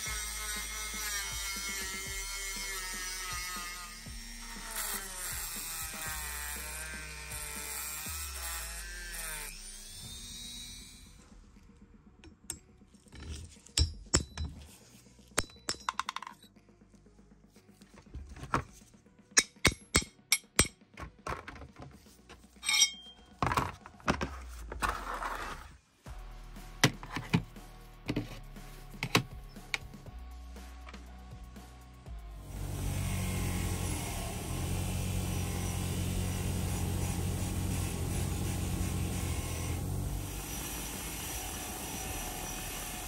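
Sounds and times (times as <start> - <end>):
rotary tool winding down: 0.0 - 11.3, 32.4 - 43.0
metal wrench parts clinking: 22.6 - 23.5.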